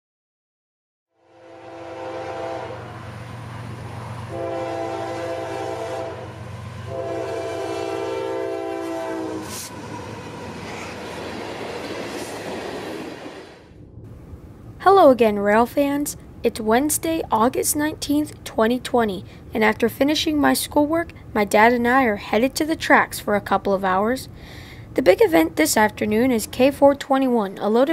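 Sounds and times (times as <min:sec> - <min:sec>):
locomotive air horn blasts: 0:01.2 - 0:03.0, 0:04.3 - 0:10.5
diesel engine humming: 0:01.8 - 0:12.0
freight cars rolling on rails: 0:09.5 - 0:15.0.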